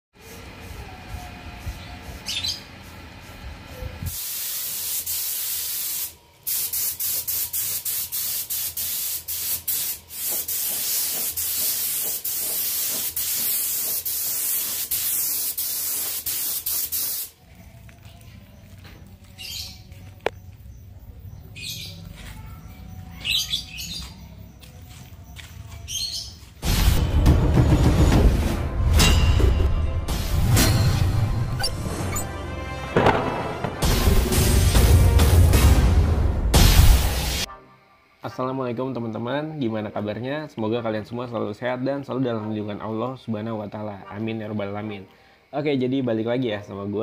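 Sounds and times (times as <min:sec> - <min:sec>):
birds chirping: 0:01.0 - 0:04.0, 0:17.4 - 0:26.6
paint spray gun hissing: 0:04.1 - 0:17.4.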